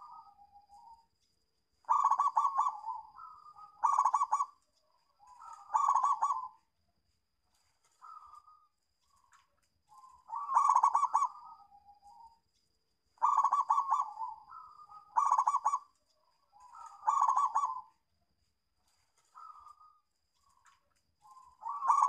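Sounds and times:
dove cooing: 0:00.0 - 0:01.0, 0:01.8 - 0:04.6, 0:05.2 - 0:06.7, 0:08.0 - 0:08.7, 0:09.9 - 0:12.3, 0:13.2 - 0:18.0, 0:19.2 - 0:20.0, 0:21.2 - 0:22.0.

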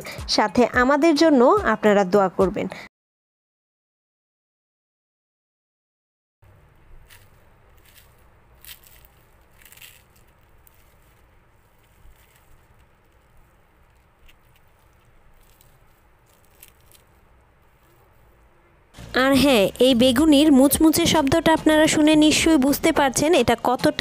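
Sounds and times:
fritters crunching and crackling: 0:06.5 - 0:18.9.

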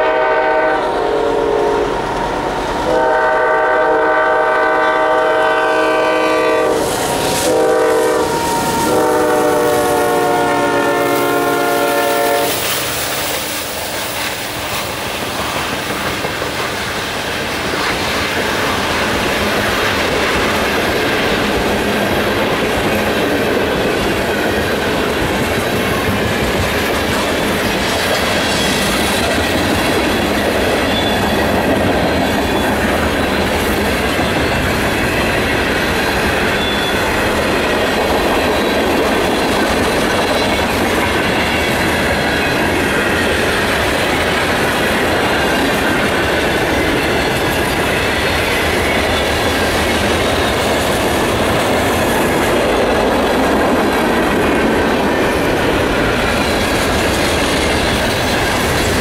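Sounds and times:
freight train wheels rumbling on rails: 0:00.0 - 0:59.0
high-pitched wheel squeal: 0:30.8 - 0:31.5, 0:36.5 - 0:37.2.

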